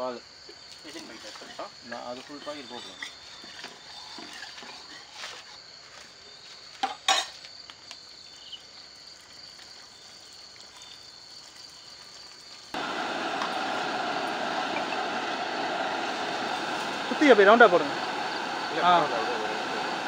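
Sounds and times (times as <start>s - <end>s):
faint hiss: 10.1s - 20.0s
steady rushing noise: 12.8s - 20.0s.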